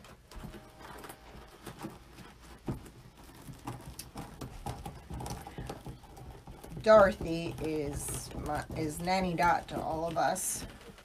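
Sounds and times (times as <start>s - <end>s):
mesh rustling and crinkling: 0.0s - 11.0s.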